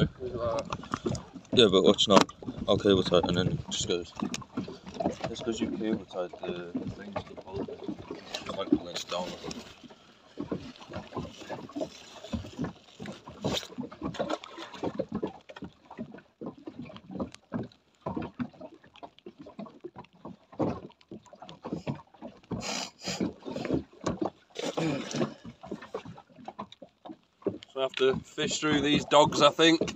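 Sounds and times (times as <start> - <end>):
knocks and clatter on deck: 0.0 - 9.7, 27.4 - 29.9
water slapping against hull: 0.0 - 29.9.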